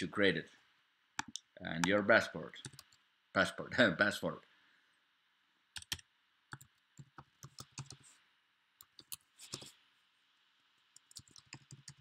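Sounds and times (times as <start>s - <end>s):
computer keyboard clicks: 5.8s - 8.0s, 11.0s - 12.0s.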